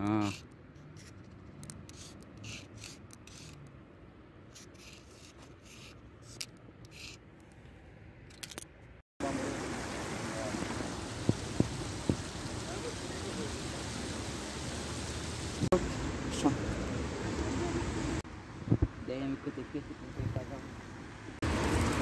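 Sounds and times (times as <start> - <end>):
marker scratching on concrete: 0.0 - 3.8, 4.5 - 7.5.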